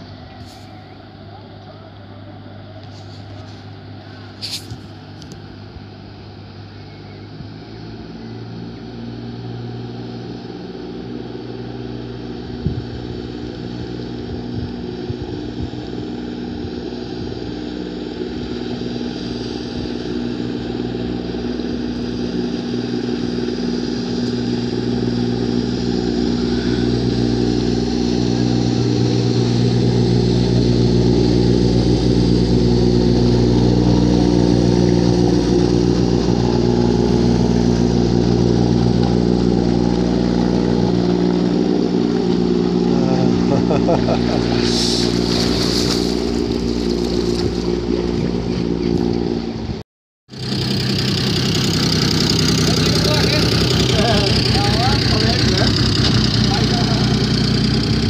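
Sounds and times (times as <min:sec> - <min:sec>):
boat diesel engine running: 0:00.0 - 0:58.0
deep rumble: 0:11.2 - 0:49.8.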